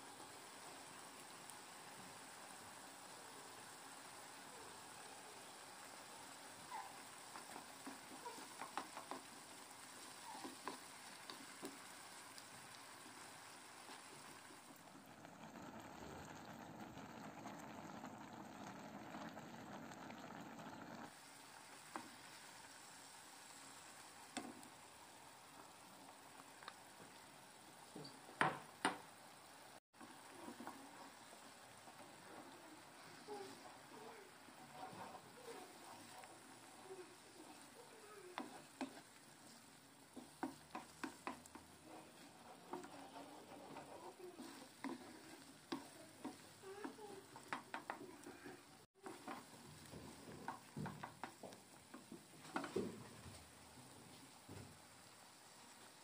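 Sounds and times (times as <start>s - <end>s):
faint sizzle: 0.0s - 56.0s
pot of pasta boiling: 0.0s - 56.0s
sauce simmering in frying pan: 0.0s - 56.0s
spoon scraping frying pan: 6.7s - 12.1s, 34.6s - 52.8s.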